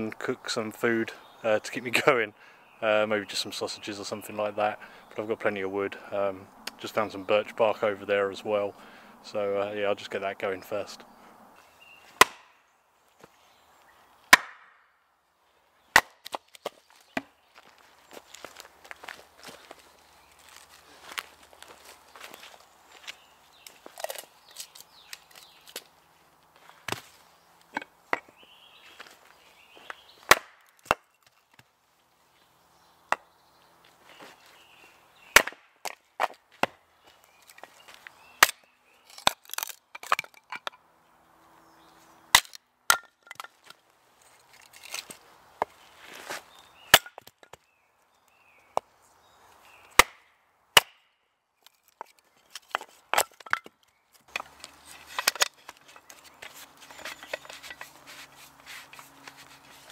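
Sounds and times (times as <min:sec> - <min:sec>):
hatchet splitting wood: 0:12.1 - 0:12.6, 0:14.3 - 0:14.8, 0:15.9 - 0:17.3, 0:29.8 - 0:31.7, 0:35.3 - 0:36.8, 0:38.3 - 0:40.8, 0:42.3 - 0:43.7, 0:46.8 - 0:47.6, 0:49.8 - 0:51.1, 0:51.7 - 0:59.9
wood handling: 0:15.9 - 0:31.7, 0:35.3 - 0:40.8, 0:42.3 - 0:47.6, 0:51.6 - 0:59.9.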